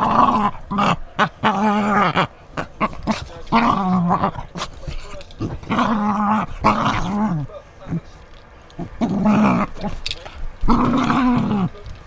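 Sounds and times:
puppy growling: 0.0 - 8.2, 8.8 - 11.9.

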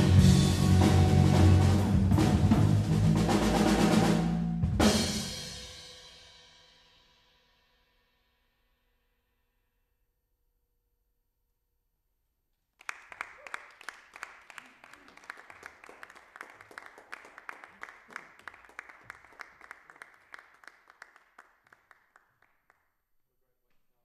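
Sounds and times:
audience applause: 12.8 - 22.8.

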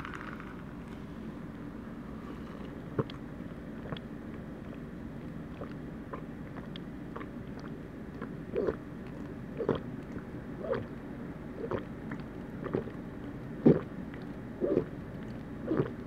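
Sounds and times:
person gulping soda: 9.6 - 10.9, 11.6 - 13.0, 13.6 - 14.9.

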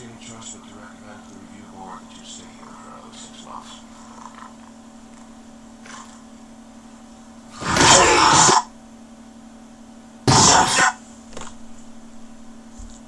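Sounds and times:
steady low hum: 0.0 - 13.0
person clearing throat: 7.6 - 8.7, 10.3 - 11.0.

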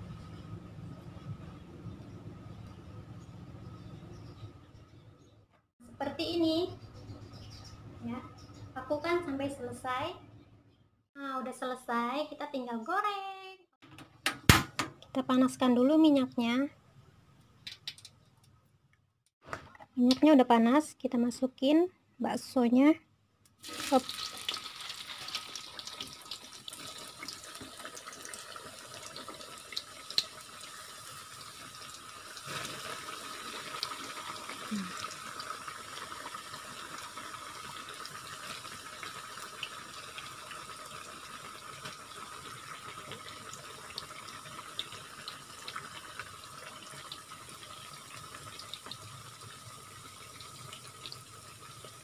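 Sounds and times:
meat sizzling in hot oil: 23.6 - 52.0.

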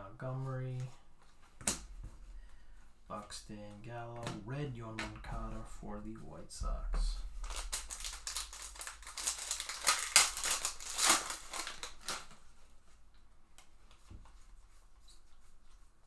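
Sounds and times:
foil wrapper crinkling and tearing: 7.4 - 12.4.

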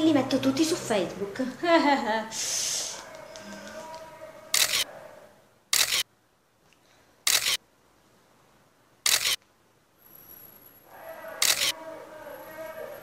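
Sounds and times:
phone camera shutter clicks: 4.6 - 4.9, 5.7 - 6.0, 7.3 - 7.6, 9.0 - 9.4, 11.4 - 11.8.

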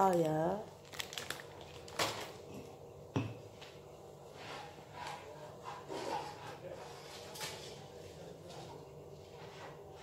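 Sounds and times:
rustling of ingredients: 0.0 - 2.8
objects knocking on counter: 3.1 - 3.4.

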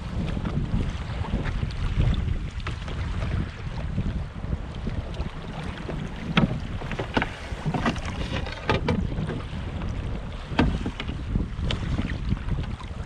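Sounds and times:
waves slapping against hull: 0.0 - 13.0
wind rumble on microphone: 0.0 - 13.0.

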